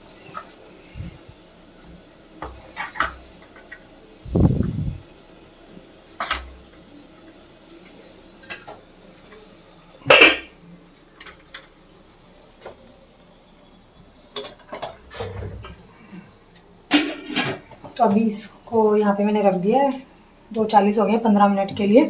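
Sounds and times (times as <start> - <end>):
steel kitchenware clanking: 16.9 - 17.6.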